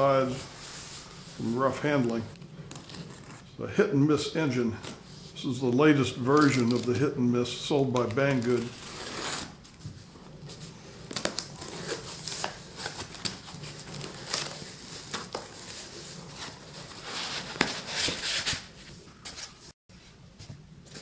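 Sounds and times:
foam packing sheet crinkling: 6.0 - 7.1, 7.8 - 9.6, 11.1 - 19.6
cardboard box being opened: 11.1 - 18.6.

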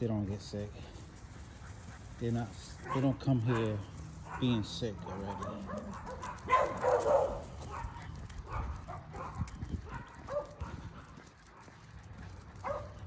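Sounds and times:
dog barking: 2.8 - 11.8, 12.6 - 13.0.

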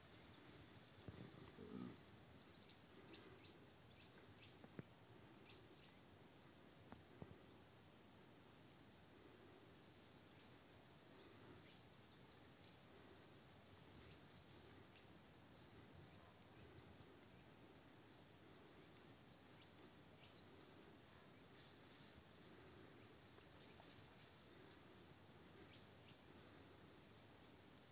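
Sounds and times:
steady high hiss: 0.0 - 27.9
faint ticks: 23.2 - 25.9.

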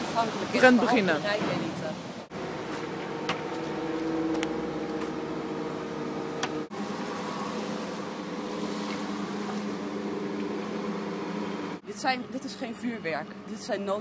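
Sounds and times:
steady mechanical hum: 2.3 - 14.0.

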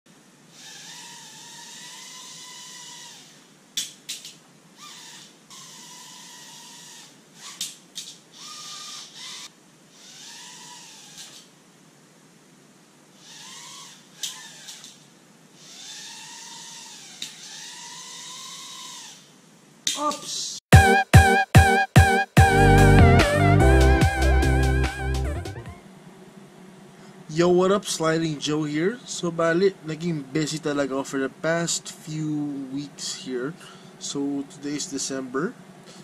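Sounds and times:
drone propeller motors whining: 0.4 - 3.5, 4.1 - 11.5, 13.2 - 19.3, 22.4 - 25.8.

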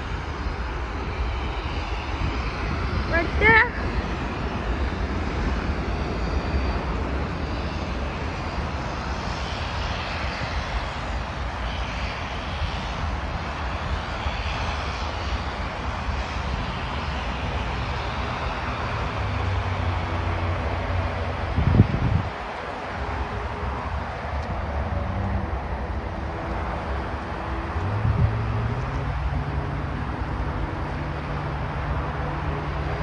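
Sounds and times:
airliner engines rushing: 0.0 - 33.0
low engine rumble: 17.2 - 33.0.

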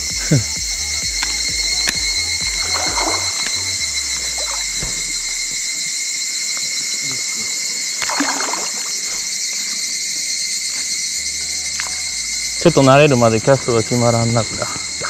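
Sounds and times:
insects buzzing: 0.0 - 15.0
water lapping and sloshing: 1.5 - 5.6, 8.0 - 9.3.

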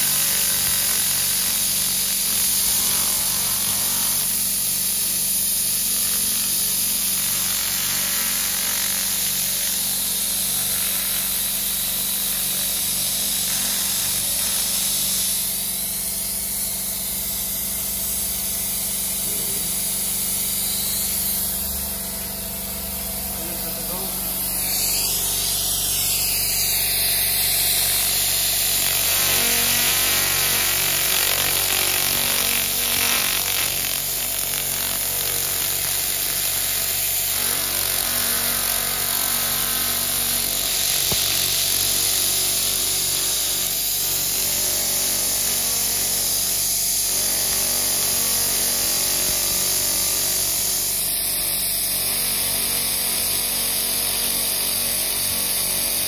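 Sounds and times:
laser cleaner hissing: 0.0 - 51.1, 52.0 - 56.0
low machine hum: 15.8 - 35.7.

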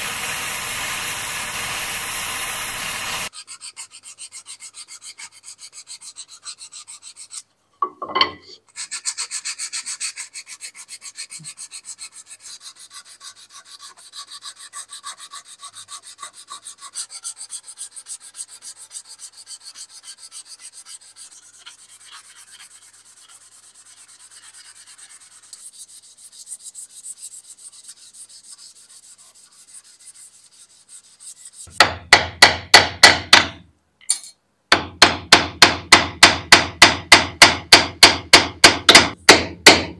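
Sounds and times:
sandpaper rubbing wood: 0.0 - 7.5, 8.7 - 31.8
hammer tapping a pin: 31.7 - 39.9.

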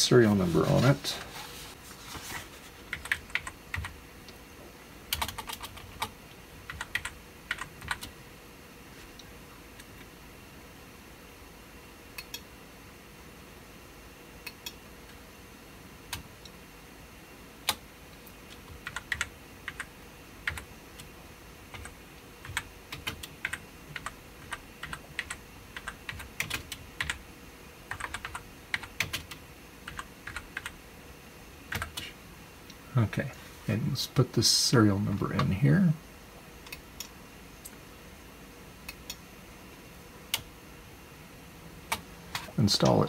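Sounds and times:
typing on computer keyboard: 5.1 - 6.1, 6.7 - 8.1, 18.8 - 19.9, 21.7 - 27.2, 27.9 - 30.7, 31.7 - 32.1.

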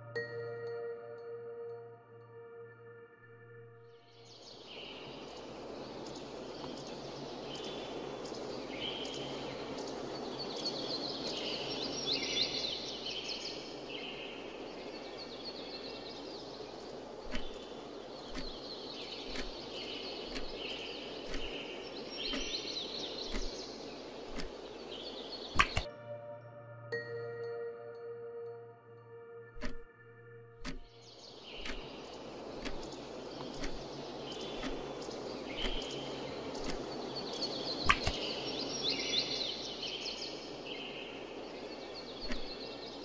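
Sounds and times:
birds chirping: 2.8 - 43.0
steady background hiss: 4.0 - 25.9, 30.6 - 43.0
sharp ticks: 17.2 - 23.7, 24.3 - 24.6, 30.6 - 36.0, 36.6 - 36.9.

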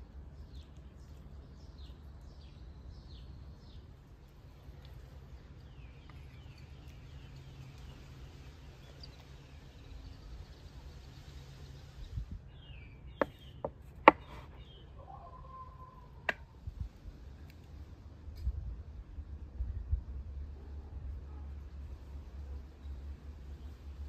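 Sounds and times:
birds chirping: 0.0 - 16.5.

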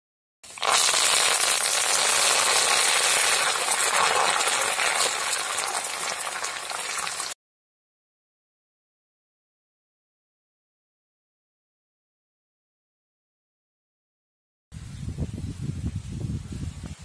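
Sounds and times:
oil sizzling and crackling in wok: 0.4 - 7.4.

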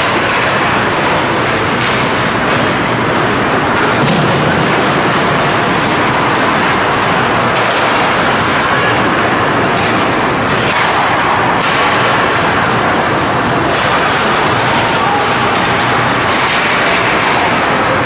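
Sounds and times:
ice rink rushing noise: 0.0 - 18.0.

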